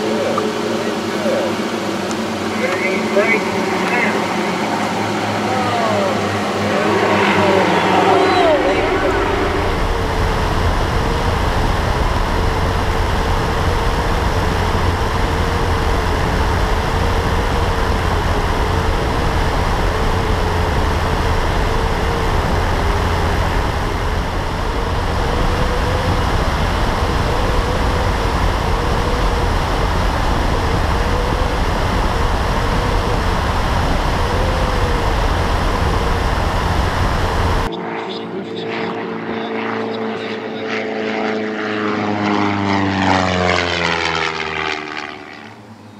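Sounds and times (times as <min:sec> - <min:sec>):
wind noise on microphone: 0:00.0 - 0:37.7
aircraft engine and propeller: 0:00.0 - 0:45.9.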